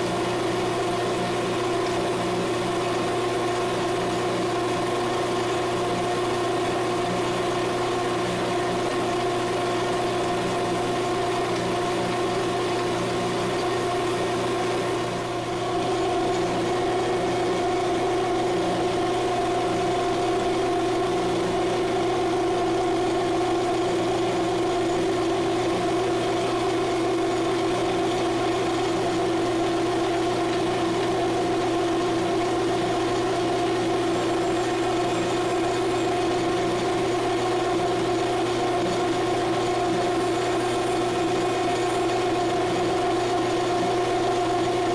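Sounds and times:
lathe motor humming and whining: 0.0 - 44.9.

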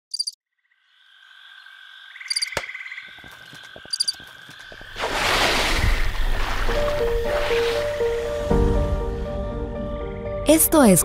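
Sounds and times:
frogs chirping in chorus: 0.1 - 5.0.

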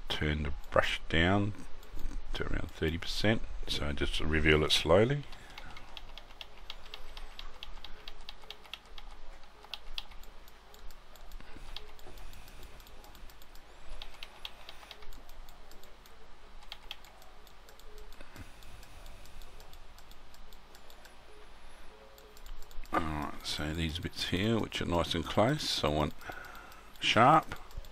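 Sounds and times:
keyboard keys clicking: 5.3 - 18.5.

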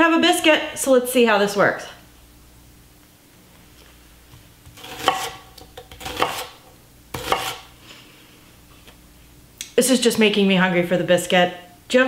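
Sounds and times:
knife chopping on wooden board: 4.6 - 7.7.

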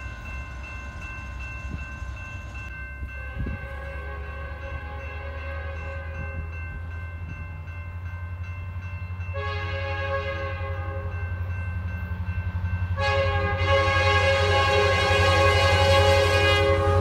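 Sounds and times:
diesel locomotive engine rumbling: 0.0 - 17.0
train air horn: 3.2 - 6.4, 9.3 - 11.2, 13.0 - 17.0.

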